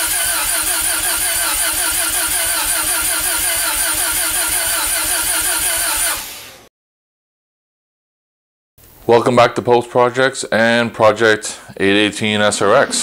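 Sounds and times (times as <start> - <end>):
rotary engine warbling: 0.0 - 6.1, 12.1 - 13.0.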